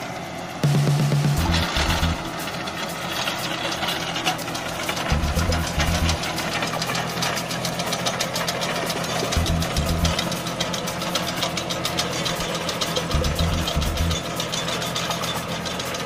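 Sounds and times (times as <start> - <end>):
tractor diesel engine under load: 0.0 - 16.0
rotary tiller blades clattering: 1.5 - 16.0.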